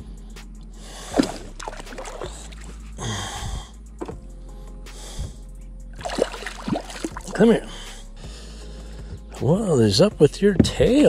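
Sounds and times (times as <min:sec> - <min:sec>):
background music: 0:00.0 - 0:11.0
fish splashing in water: 0:01.1 - 0:02.7, 0:06.0 - 0:07.4.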